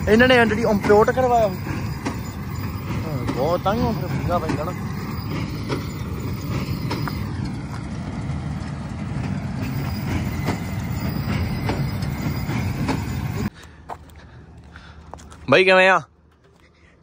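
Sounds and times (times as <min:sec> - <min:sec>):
tractor diesel engine running: 0:00.0 - 0:15.2.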